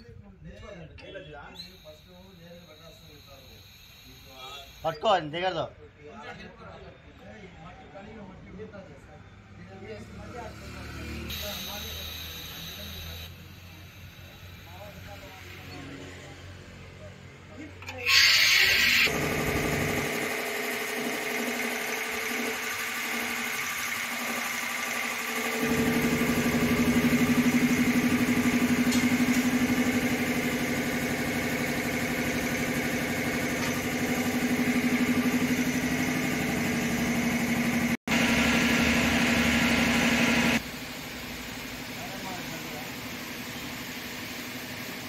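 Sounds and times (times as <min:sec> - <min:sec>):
air compressor humming: 0:01.5 - 0:05.3, 0:11.3 - 0:16.1, 0:17.8 - 0:45.0.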